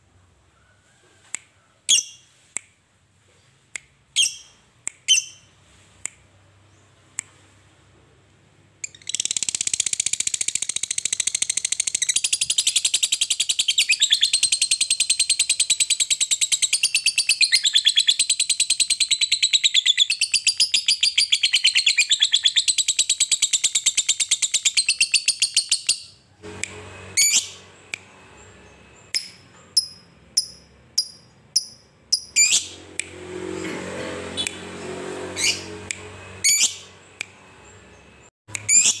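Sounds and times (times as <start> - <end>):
bird high-pitched chattering trill: 8.8 - 26.1, 29.1 - 32.7, 36.4 - 36.8, 38.6 - 39.0
bird sharp chirps: 8.8 - 26.2, 27.2 - 32.8, 35.4 - 39.0.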